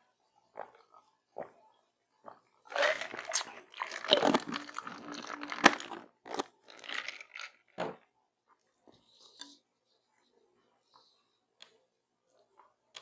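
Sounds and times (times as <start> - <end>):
chewing and wet mouth noises: 2.3 - 7.6.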